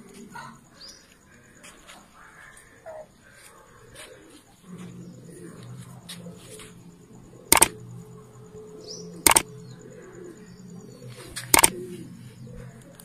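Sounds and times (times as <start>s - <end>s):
faint bird calls and cooing: 0.0s - 13.0s
mouse-click sound effects: 7.5s - 7.8s, 9.3s - 9.5s, 11.5s - 11.8s.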